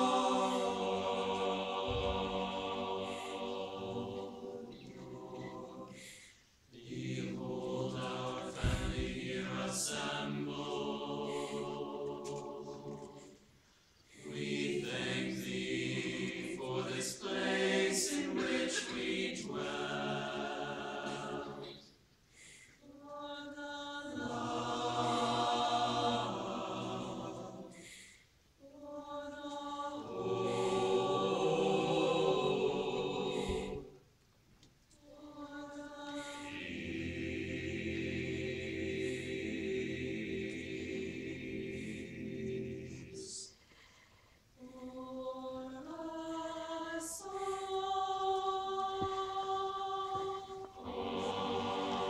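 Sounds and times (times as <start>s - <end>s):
mixed choir singing chords: 0.0s - 34.1s, 35.0s - 43.9s, 44.5s - 52.0s.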